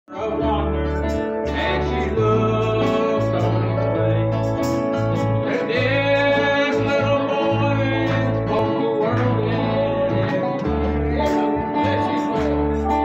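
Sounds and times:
acoustic guitars strummed: 0.1 - 13.0
person singing: 0.1 - 13.0
deep bass notes: 0.2 - 13.0.

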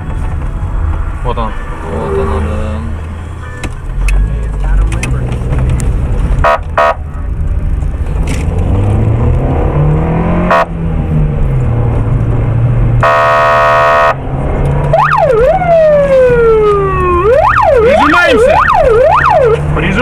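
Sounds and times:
car engine accelerating: 0.0 - 20.0
car horn blast: 6.4 - 7.1, 10.4 - 10.7, 13.0 - 14.2
police siren wailing: 14.9 - 19.7.

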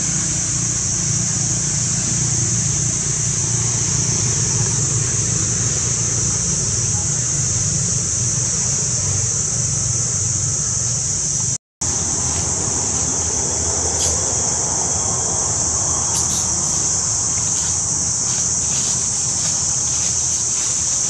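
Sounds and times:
high-pitched insect drone: 0.0 - 21.0.

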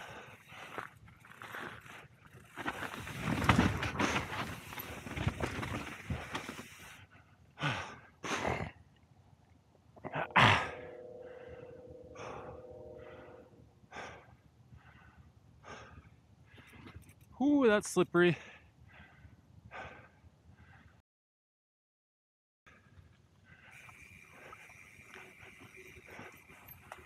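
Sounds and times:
bike rattling: 0.0 - 7.0, 23.7 - 27.0
bike tyres crunching on dirt: 0.0 - 7.0, 23.8 - 27.0
rider breathing heavily: 0.0 - 8.8, 13.9 - 17.3, 18.4 - 21.0, 22.7 - 27.0
short steady hum: 10.1 - 13.7.

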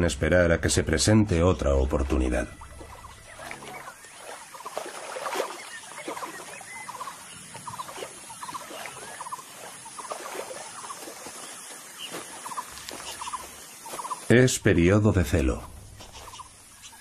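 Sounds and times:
hooves splashing in water: 1.5 - 14.5
chorus of chirping calls: 2.5 - 14.3.

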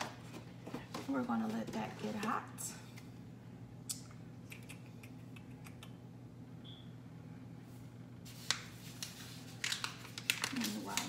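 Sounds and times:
low electrical hum: 0.0 - 11.0
paper bag rustle: 8.3 - 11.0.

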